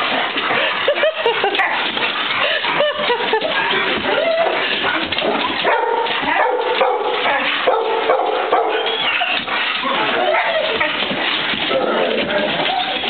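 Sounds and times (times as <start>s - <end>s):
dogs whining and yipping: 0.4s - 6.2s, 8.4s - 11.4s, 12.3s - 13.0s.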